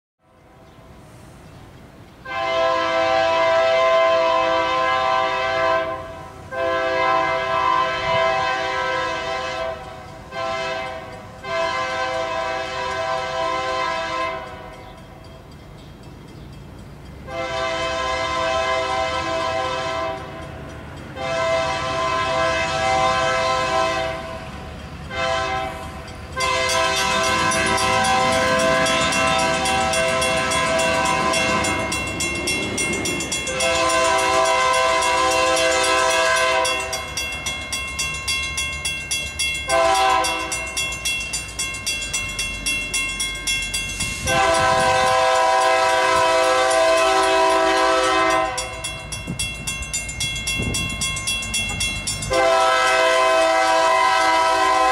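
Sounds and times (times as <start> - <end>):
locomotive air horn blasts: 2.2 - 14.8, 17.2 - 20.5, 21.2 - 32.0, 33.4 - 37.1, 39.7 - 40.6, 44.2 - 48.9, 52.3 - 54.9.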